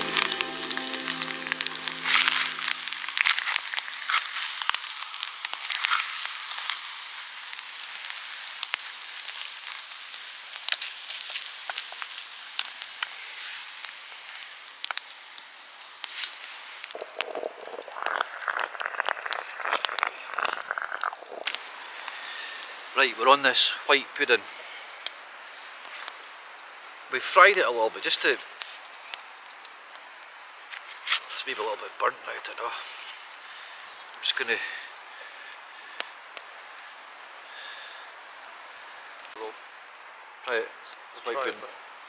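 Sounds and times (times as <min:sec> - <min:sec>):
food sizzling in a pan: 0:00.0 - 0:27.3, 0:32.7 - 0:40.2
low coarse crackle: 0:00.0 - 0:42.0.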